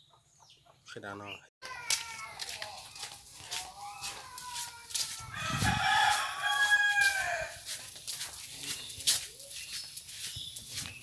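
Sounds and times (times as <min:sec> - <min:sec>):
rooster crowing: 0:05.3 - 0:07.7.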